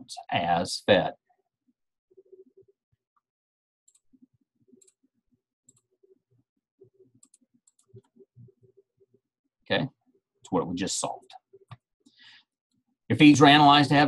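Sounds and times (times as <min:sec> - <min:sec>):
computer mouse clicks: 0:03.9 - 0:04.2, 0:04.8 - 0:05.0, 0:05.7 - 0:05.9, 0:07.1 - 0:08.2.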